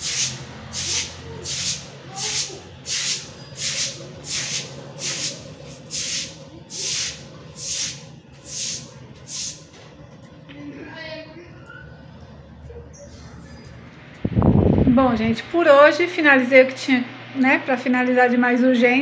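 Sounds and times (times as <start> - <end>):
rhythmic rubbing strokes: 0.0 - 10.3.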